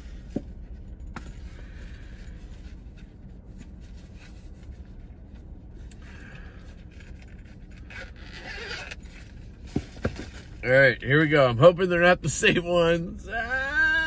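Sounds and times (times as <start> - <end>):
sunglasses case unzipping: 7.6 - 9.2.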